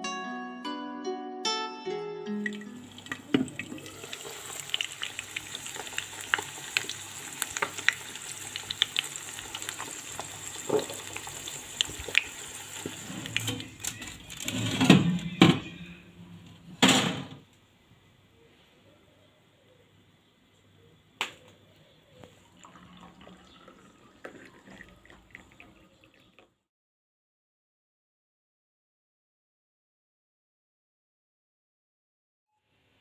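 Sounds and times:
eggs sizzling in frying pan: 2.5s - 14.5s.

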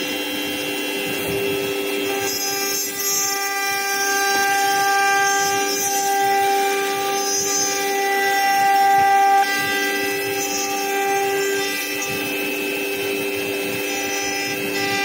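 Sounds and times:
router spindle whine: 0.0s - 15.0s
rasp of wood cutting: 0.9s - 15.0s.

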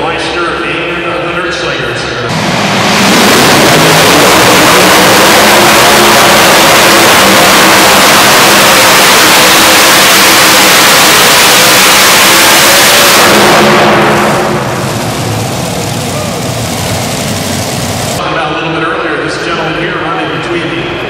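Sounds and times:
pulling tractor engine roar: 2.3s - 18.2s.

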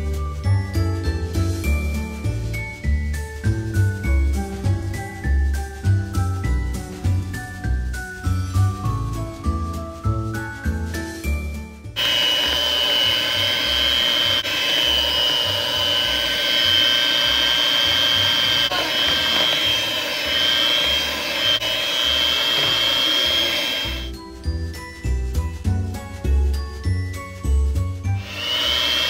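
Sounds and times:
faint background music bass: 0.0s - 12.0s, 12.6s - 28.3s
electric hand mixer whining: 12.0s - 24.3s, 28.0s - 29.0s.

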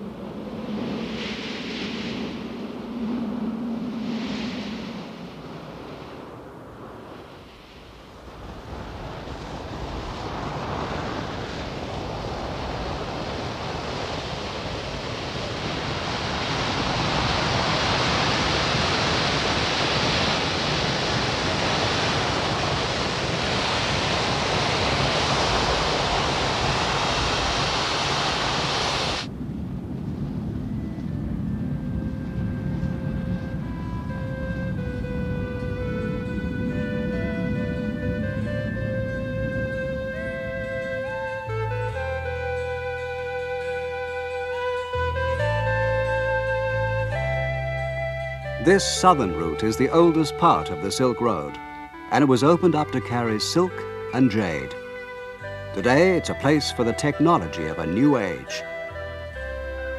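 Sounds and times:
faint music: 30.7s - 59.9s.

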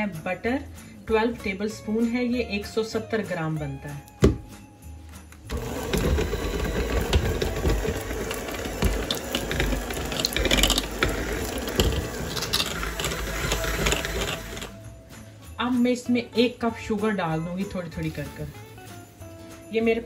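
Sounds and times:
beaters knocking in bowl: 5.5s - 14.7s
electric hand mixer running: 5.5s - 14.8s.

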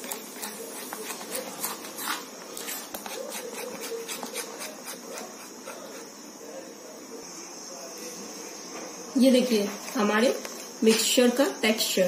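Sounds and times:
spoon scraping plastic bowl: 0.0s - 6.1s.

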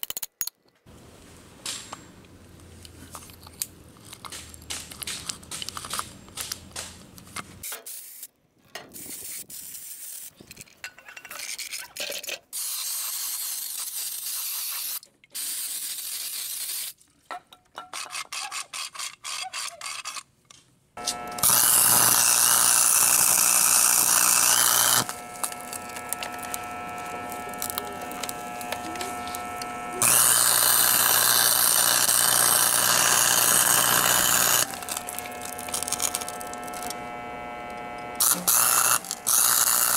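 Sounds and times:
scraping and handling noise: 0.1s - 7.9s
welding arc crackle and hiss: 7.6s - 8.3s, 8.9s - 10.4s, 12.5s - 17.0s, 21.0s - 39.9s
low steady hum: 21.0s - 39.9s.

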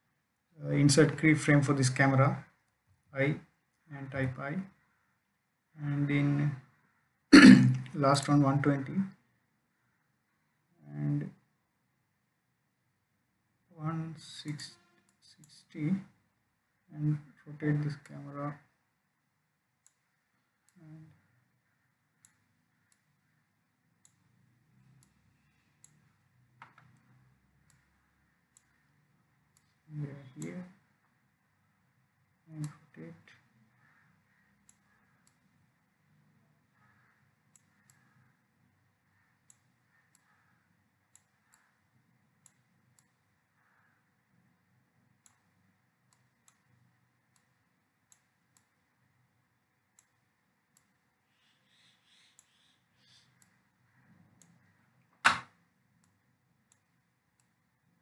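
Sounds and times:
computer mouse clicks: 19.8s - 20.8s, 21.6s - 28.9s, 33.8s - 35.6s, 36.8s - 38.3s, 39.2s - 43.8s, 45.1s - 48.8s, 49.9s - 57.6s.

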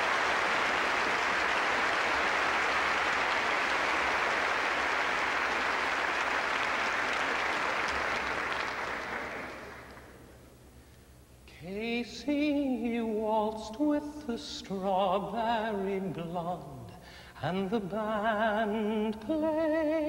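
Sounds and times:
large audience applauding: 0.0s - 10.2s.

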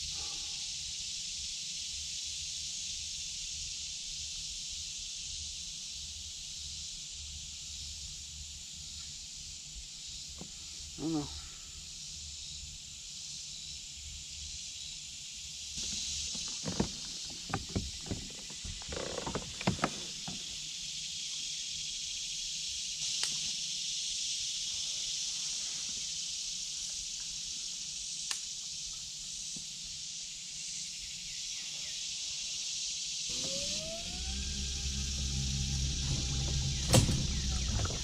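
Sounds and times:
insect drone: 0.0s - 38.0s
electric motor whine: 33.3s - 38.0s.

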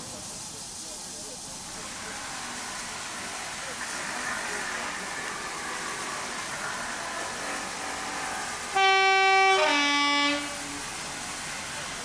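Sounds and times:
two-tone locomotive horn: 8.6s - 10.8s.

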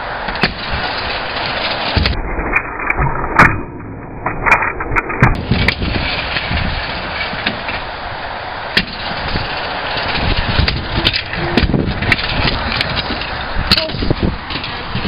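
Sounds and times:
steady noisy rush: 0.0s - 15.0s
scooter knocks and clatters: 0.3s - 2.2s, 5.2s - 7.8s, 8.7s - 15.0s.

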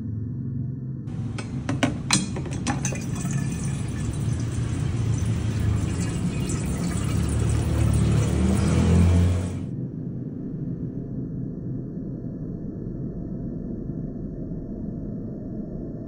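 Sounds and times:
dispenser tap clicks: 1.1s - 6.1s
water pouring into bottle: 1.1s - 9.7s.

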